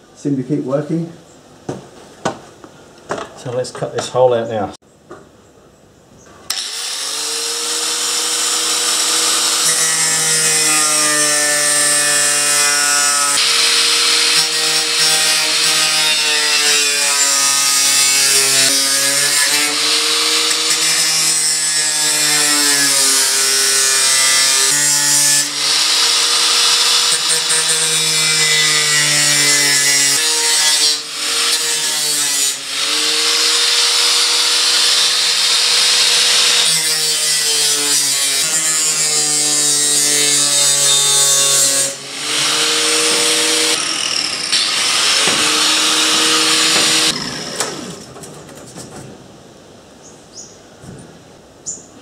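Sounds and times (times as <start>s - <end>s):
angle grinder cutting steel: 6.5s - 48.1s.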